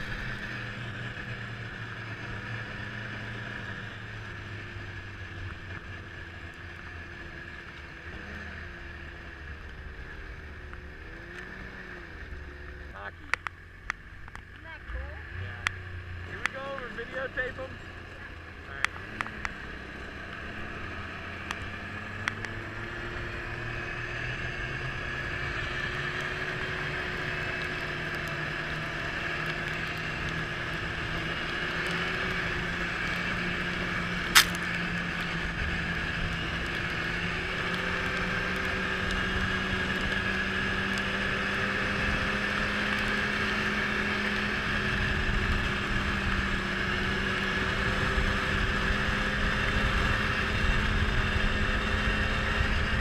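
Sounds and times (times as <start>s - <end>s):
snowmobile engine running: 0.0s - 53.0s
sharp click: 34.3s - 34.7s.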